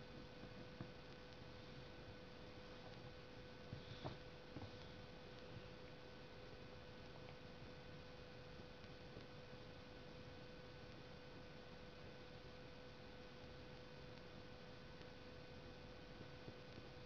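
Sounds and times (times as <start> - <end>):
background hiss: 0.0 - 17.0
faint steady hum: 0.0 - 17.0.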